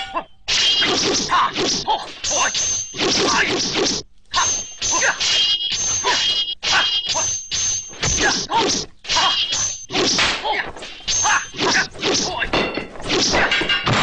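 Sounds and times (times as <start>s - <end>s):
weapon whacks: 10.0s - 10.5s
metallic weapon clangs: 12.4s - 14.0s.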